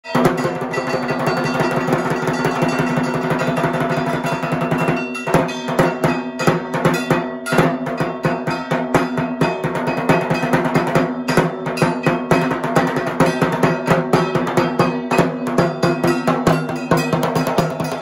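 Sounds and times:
barrel drum beaten with sticks: 0.0 - 18.0
metallic ringing: 0.0 - 18.0.

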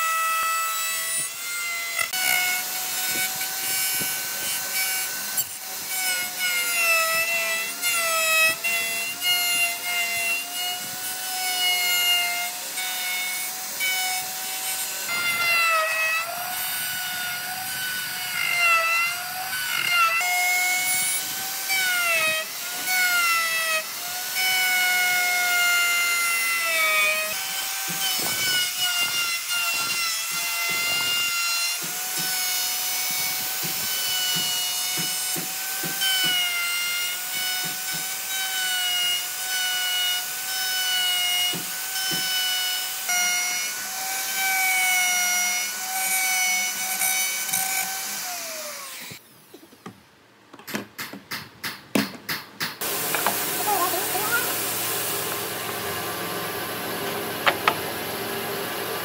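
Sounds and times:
router bit cutting wood: 0.0 - 49.9, 52.8 - 59.0
router motor whine: 0.0 - 49.9, 52.8 - 59.0.

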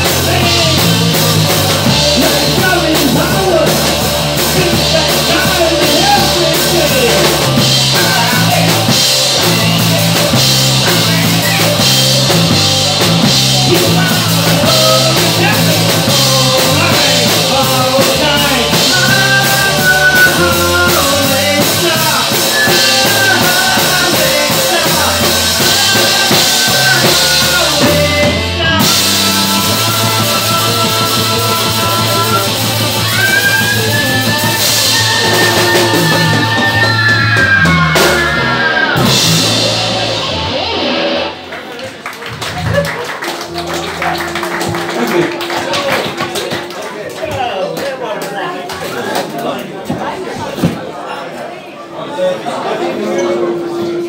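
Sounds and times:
person singing: 0.0 - 41.4
drum kit with cymbals: 0.0 - 41.5
bass line: 0.0 - 46.8
electric guitar: 0.0 - 47.1.

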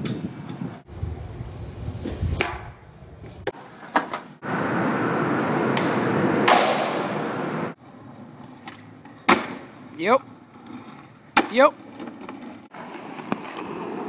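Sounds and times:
skateboard wheels rolling on concrete: 0.0 - 14.0
skateboard popping and landing clacks: 3.4 - 4.4, 5.7 - 7.1, 8.2 - 14.0
hard skateboard hit: 5.7 - 7.2, 8.6 - 9.7.

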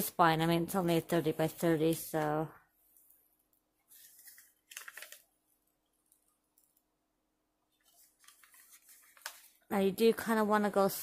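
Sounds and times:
plastic film peeling: 3.9 - 5.4, 7.8 - 9.7.

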